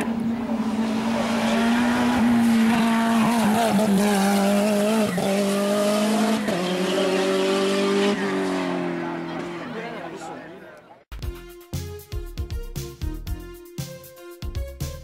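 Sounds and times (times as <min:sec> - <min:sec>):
racing car engine at high revs: 0:00.0 - 0:10.3.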